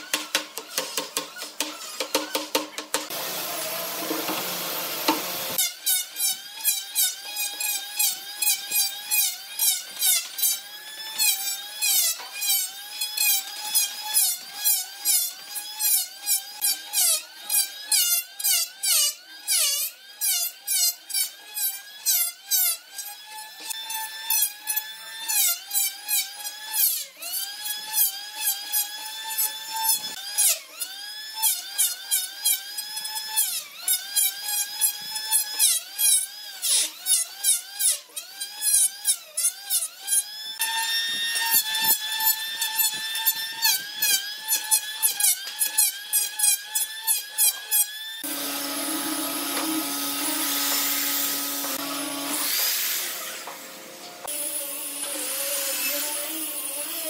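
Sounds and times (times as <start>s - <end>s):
electric hand planer whining: 3.1s - 18.0s, 39.6s - 57.0s.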